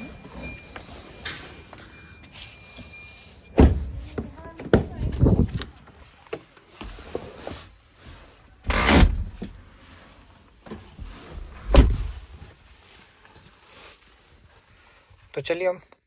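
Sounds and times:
car doors shutting: 11.6 - 12.2.

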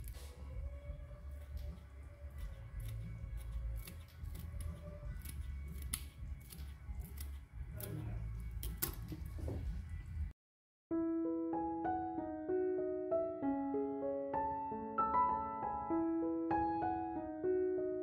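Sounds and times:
scissors snipping: 1.4 - 9.3.

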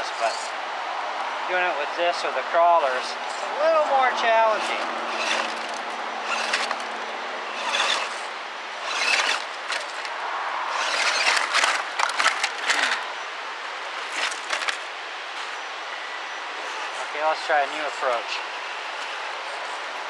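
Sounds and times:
tires scraping over rock: 1.4 - 15.7, 16.4 - 19.8
toy car motor whining: 4.4 - 10.1, 10.7 - 13.2, 14.0 - 14.8
toy car tumbling with cracks: 4.6 - 10.1, 10.7 - 13.1, 14.0 - 14.9.

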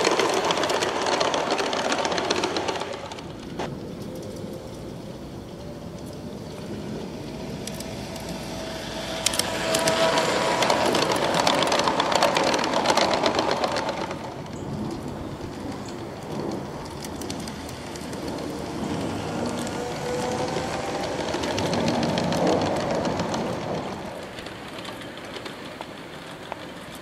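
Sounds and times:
wheels clicking on rails: 0.0 - 27.0
model train motor whine: 7.2 - 13.8.

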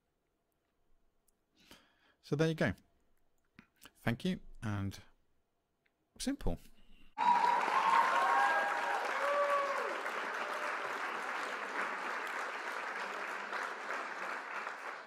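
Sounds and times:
whistles and cheers: 7.2 - 13.9
crowd applauding: 7.2 - 15.0.

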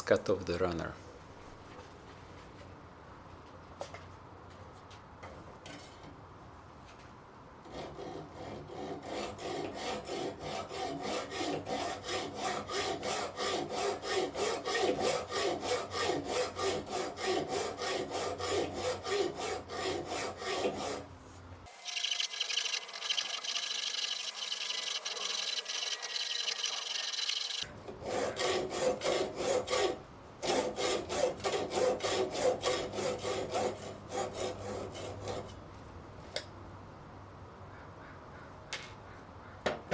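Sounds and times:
hacksaw rasping on metal: 7.6 - 21.1, 21.7 - 35.6.

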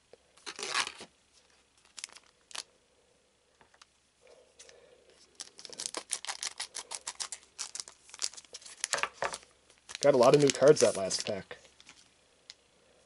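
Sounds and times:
foil wrapper crinkling: 0.4 - 1.1, 1.8 - 2.7, 5.4 - 12.0.

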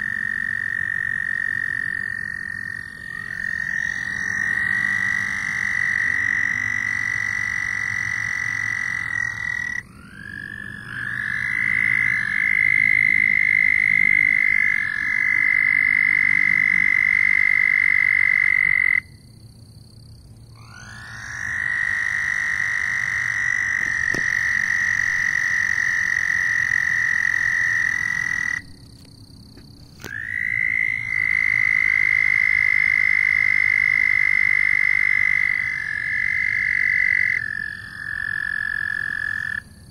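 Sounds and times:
frogs trilling: 0.0 - 39.9.

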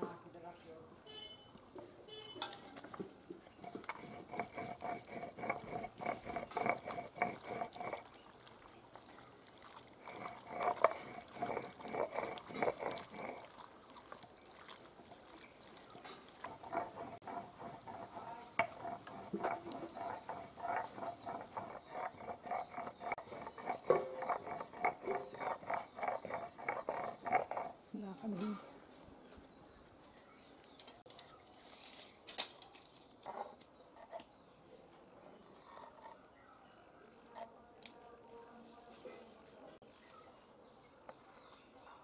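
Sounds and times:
wet squelching of kneaded chicken: 7.4 - 17.3.

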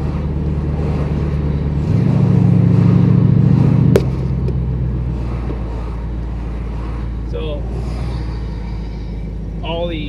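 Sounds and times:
car engine running: 0.0 - 10.0
road rumble: 0.0 - 10.0.

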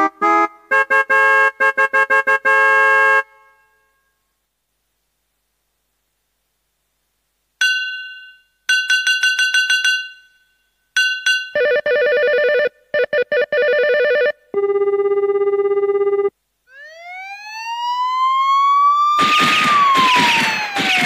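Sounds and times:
bell-like keyboard pings: 7.6 - 12.4.

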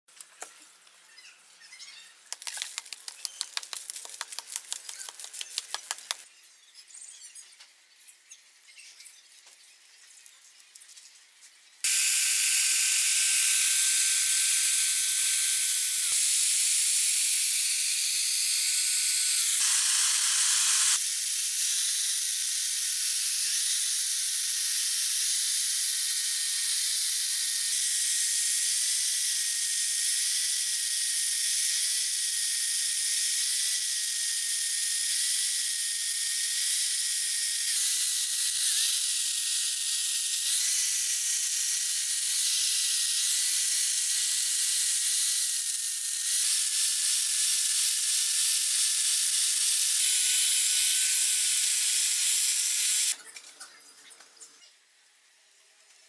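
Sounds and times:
electric chainsaw cutting log: 11.8 - 53.2.

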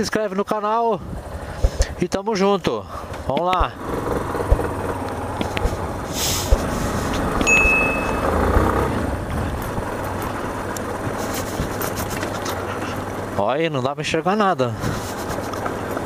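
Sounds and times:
motorcycle on gravel road: 1.1 - 16.0
sharp knocks from bumps: 4.4 - 5.8.

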